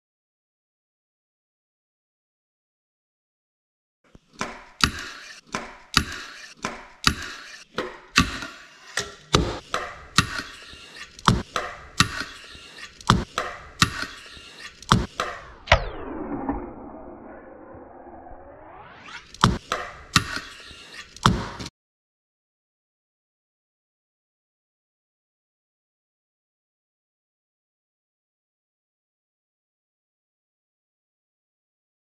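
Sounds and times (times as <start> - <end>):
pitched sweep: 13.4 - 19.6.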